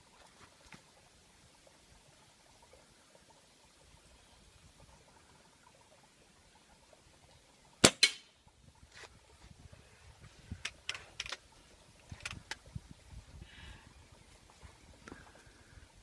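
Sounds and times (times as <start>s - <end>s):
air rifle crack: 7.8s - 8.3s
rifle handling clicks and knocks: 10.6s - 12.6s.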